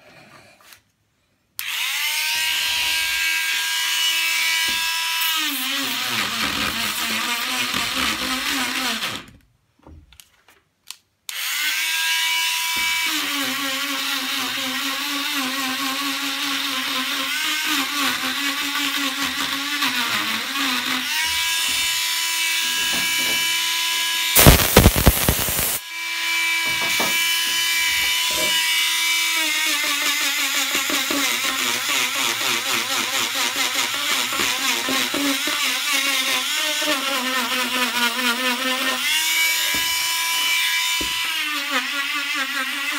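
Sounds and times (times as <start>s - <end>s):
loud harsh noise: 24.4s - 25.8s.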